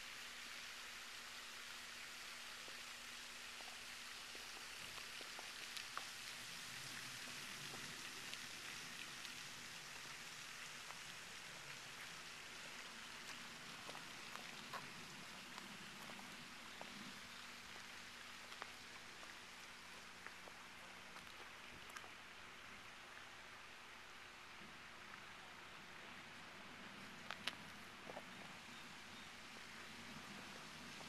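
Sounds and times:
fountain spray hissing on water: 0:00.0 - 0:31.0
light ticks: 0:27.2 - 0:28.5.

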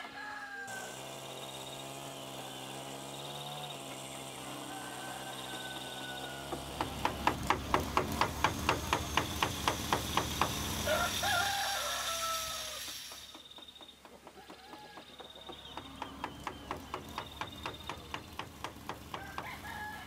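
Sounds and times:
rooster crowing: 0:00.0 - 0:01.1, 0:04.4 - 0:07.3, 0:10.8 - 0:12.9, 0:19.1 - 0:20.0.

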